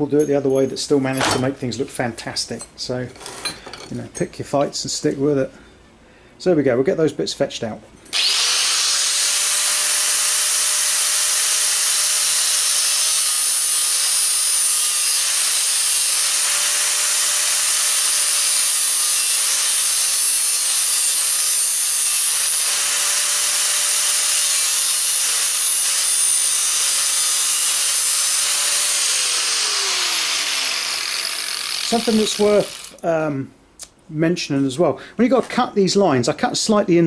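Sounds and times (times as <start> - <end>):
angle grinder whining: 8.1 - 33.0.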